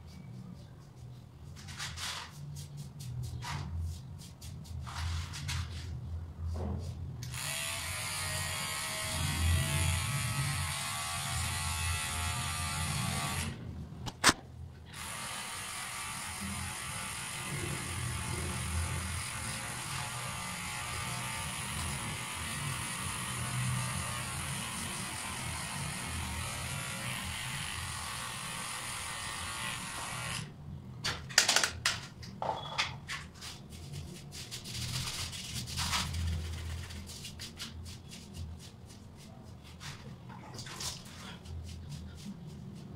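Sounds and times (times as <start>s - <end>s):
hands rubbing through hair: 0.0s - 6.0s, 33.3s - 42.9s
electric hair trimmer buzzing: 7.2s - 13.6s, 14.9s - 30.5s.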